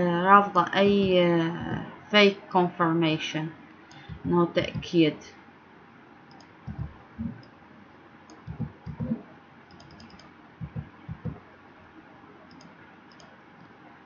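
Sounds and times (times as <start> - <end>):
computer keyboard typing: 6.3 - 7.5, 8.3 - 11.4, 12.5 - 13.3.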